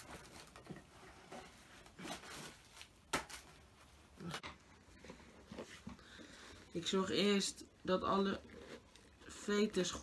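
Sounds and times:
packing paper rustling: 0.0s - 4.3s.

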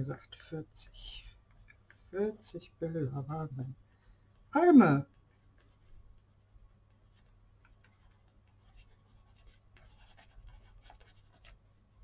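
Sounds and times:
pen scratching on paper: 7.8s - 11.6s.

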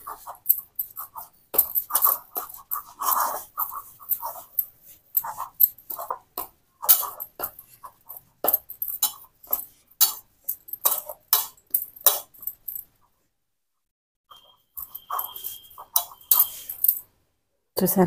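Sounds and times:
hands kneading dough in steel bowl: 14.8s - 17.0s.

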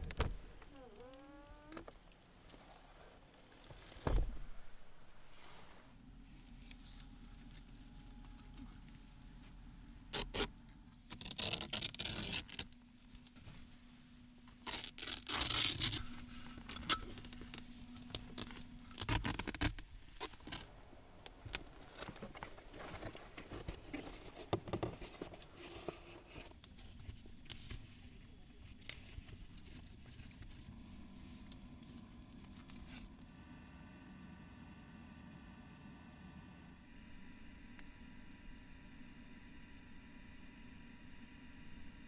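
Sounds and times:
loud tearing rasping bursts: 11.1s - 12.8s, 14.6s - 16.0s.

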